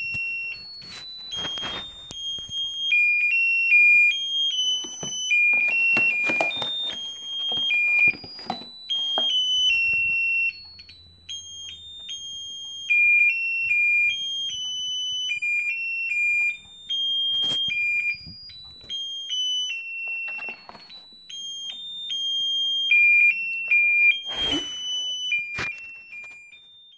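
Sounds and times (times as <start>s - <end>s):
handling knocks and rustles: 0.0s - 2.9s, 4.6s - 10.3s, 19.9s - 21.8s
tinny electronic beeping tune: 0.0s - 26.9s.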